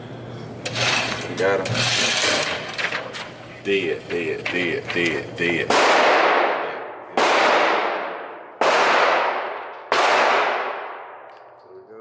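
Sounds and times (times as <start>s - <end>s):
gunshots with ringing decay: 5.7s - 11.6s.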